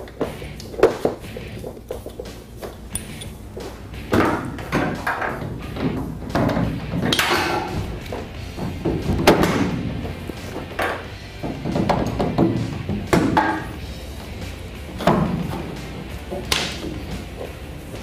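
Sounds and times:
thumps: 0.1s - 18.0s
metal frame clattering on tailgate: 4.1s - 8.0s.

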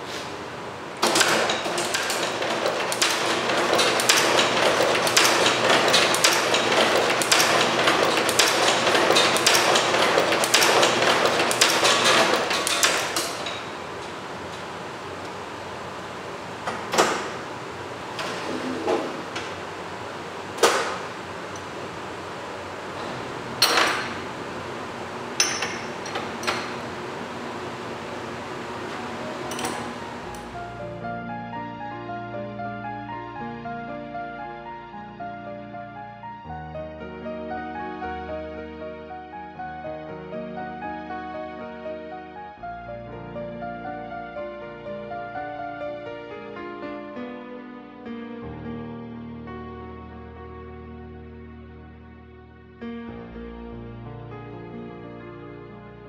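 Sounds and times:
wire cutting machine clattering: 1.0s - 15.4s, 22.9s - 30.8s
sharp metal knocks and clinks: 25.4s - 26.7s.

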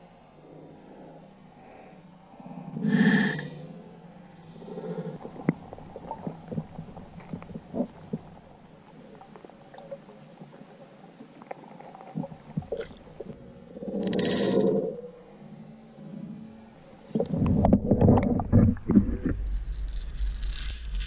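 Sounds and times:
low underwater rumble: 4.1s - 15.0s, 16.2s - 21.0s
sharp underwater clicks and knocks: 17.1s - 21.0s.

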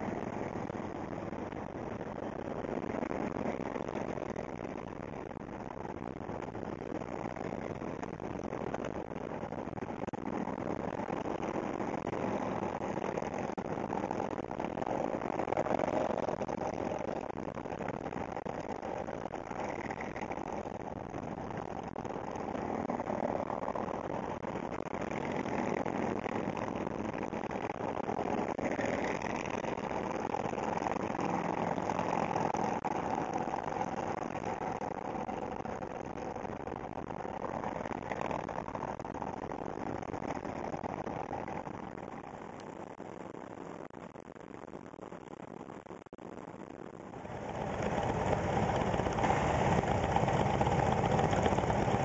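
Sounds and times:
vehicle engine and road noise: 0.0s - 43.8s, 47.0s - 52.0s
motorcycles riding: 47.2s - 52.0s.

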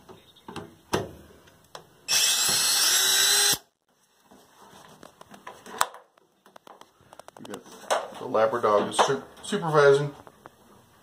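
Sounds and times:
drill clicks: 2.1s - 3.7s
drill whining: 2.1s - 3.7s.

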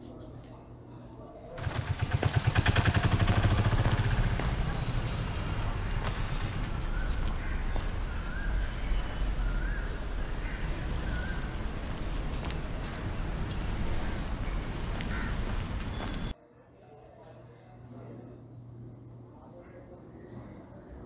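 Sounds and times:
low traffic rumble: 1.6s - 16.4s.

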